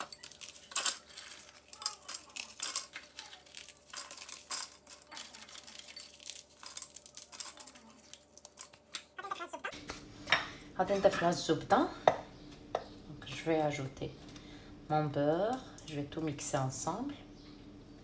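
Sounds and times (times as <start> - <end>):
pieces clattering into plastic bowl: 0.0 - 9.1
biscuits snapping: 0.0 - 10.0.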